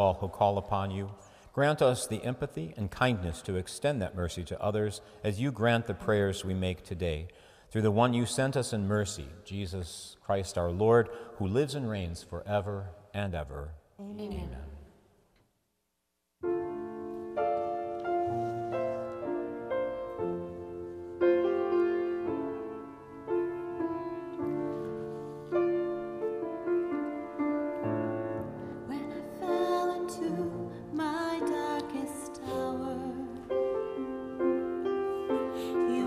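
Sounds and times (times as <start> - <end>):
grand piano chords: 16.4 - 36.0
woman singing: 28.9 - 33.5, 35.1 - 36.0.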